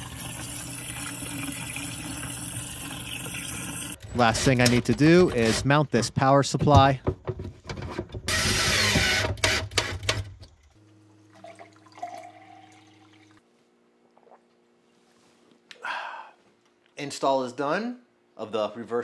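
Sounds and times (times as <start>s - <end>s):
water trickling into a glass: 0.0s - 4.0s, 11.3s - 13.4s
knocks and clatter: 6.4s - 10.5s.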